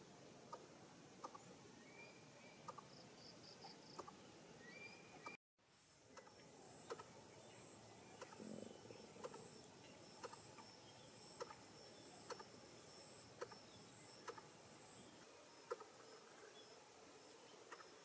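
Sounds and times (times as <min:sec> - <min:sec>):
thin high insect hum: 0:05.7 - 0:18.0.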